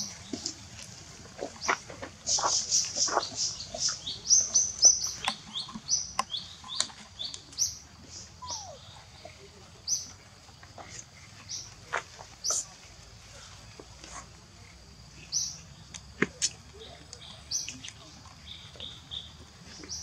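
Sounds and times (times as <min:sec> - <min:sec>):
squeaky animal chirps: 0:08.4 - 0:08.8.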